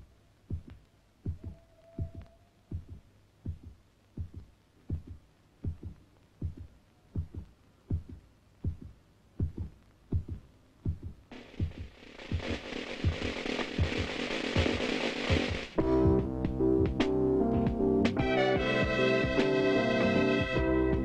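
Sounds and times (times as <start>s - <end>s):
heartbeat double thump: 0.5s - 17.0s.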